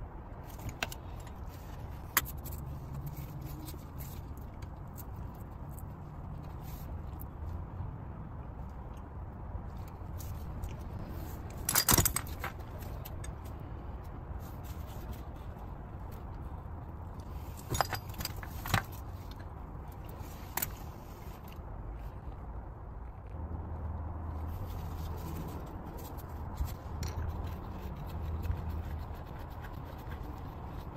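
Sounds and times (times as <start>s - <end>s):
low steady rumble: 0.0s - 30.9s
metal clinking and scraping: 11.1s - 13.5s, 17.1s - 21.6s.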